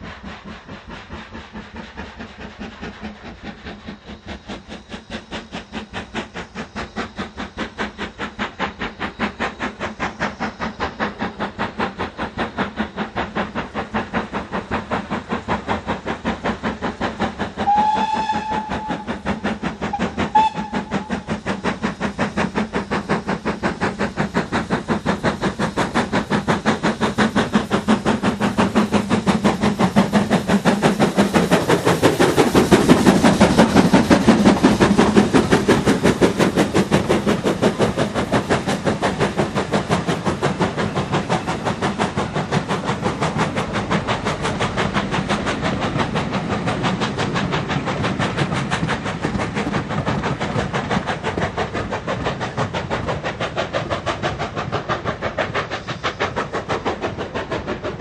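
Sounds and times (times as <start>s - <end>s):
steam locomotive exhaust beating: 0.0s - 58.0s
steam whistle: 17.6s - 19.2s, 19.9s - 21.2s.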